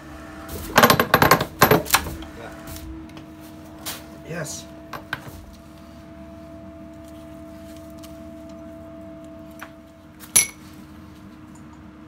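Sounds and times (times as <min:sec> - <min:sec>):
hydraulic system hum: 0:00.0 - 0:11.9
sharp metal clink: 0:10.4 - 0:10.6.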